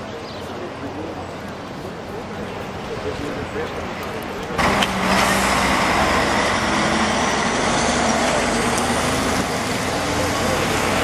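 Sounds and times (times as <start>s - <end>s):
heavy truck driving past: 4.6s - 11.0s.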